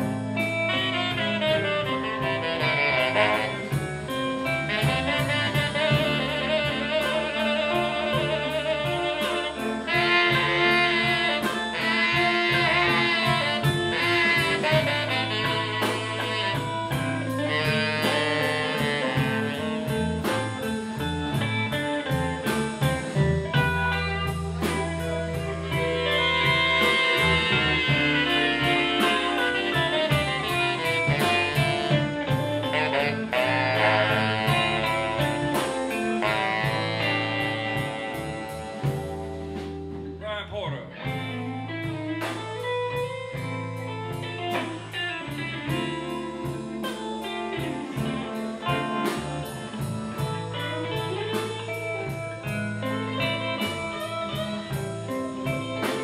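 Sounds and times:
live blues band playing: 0.0 - 56.0
saxophone melody: 0.0 - 56.0.

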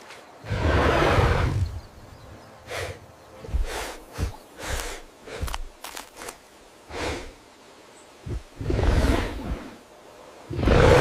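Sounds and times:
dinosaur snorts: 10.5 - 11.0.

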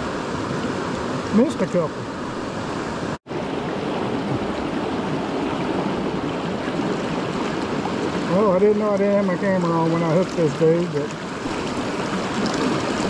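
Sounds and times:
river rushing around feet: 0.0 - 13.0.

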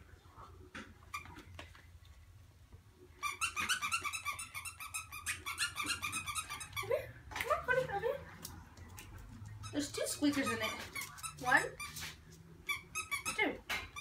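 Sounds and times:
dog toy squeaking: 3.2 - 7.1, 9.6 - 12.1, 12.7 - 14.0.

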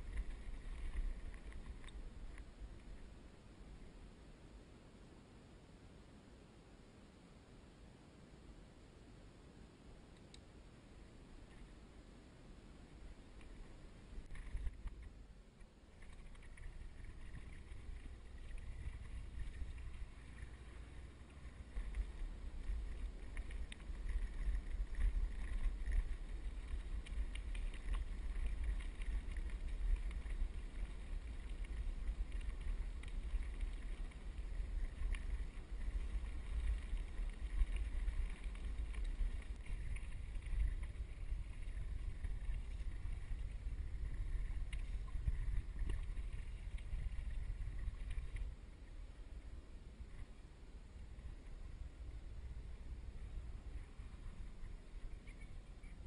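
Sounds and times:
faint ticks: 0.0 - 3.2, 10.1 - 10.5, 11.4 - 11.8, 12.9 - 49.1, 53.3 - 56.0.

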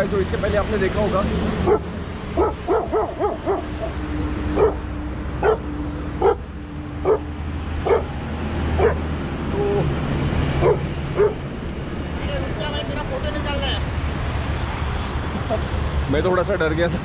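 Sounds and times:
dog barking sharply: 1.6 - 4.0, 4.6 - 4.8, 5.4 - 6.4, 7.0 - 8.1, 8.8 - 9.0, 10.6 - 11.4.

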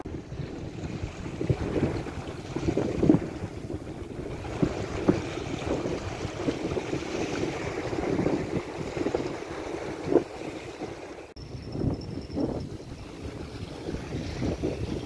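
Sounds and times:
small waves lapping on shore: 0.0 - 11.4, 12.7 - 15.0
wind buffeting microphone: 0.0 - 15.0.

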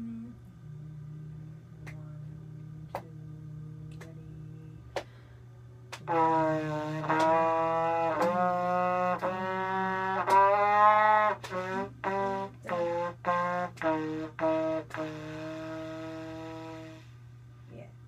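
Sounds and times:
trumpet playing a scale: 6.0 - 17.1.

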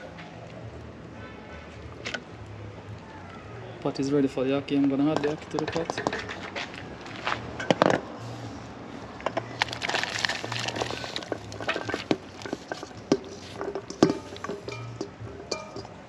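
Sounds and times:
metal clinking on metal: 11.2 - 16.0.

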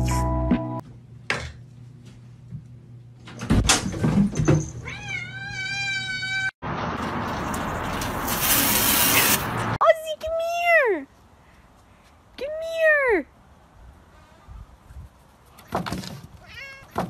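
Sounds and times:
cat meowing: 4.8 - 6.5, 16.4 - 17.0
hose water spraying on window: 7.3 - 9.8.

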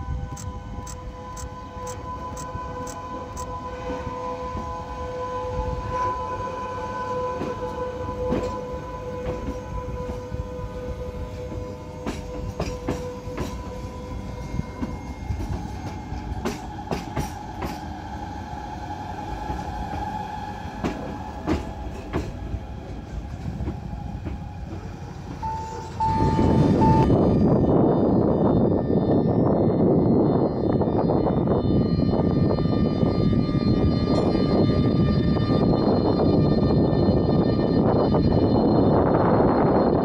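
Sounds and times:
train rolling with low rumble: 0.0 - 40.0
high-pitched whine: 25.4 - 40.0.

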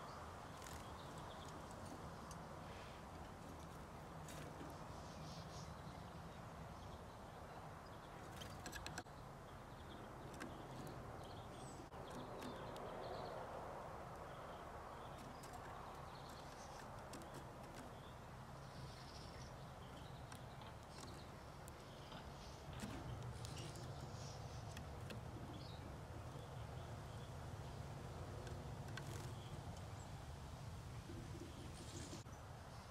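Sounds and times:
faint high twittering bird calls: 0.0 - 32.9
low background noise: 0.0 - 32.9
birds tapping in wire cage: 8.1 - 9.1, 9.7 - 30.0.

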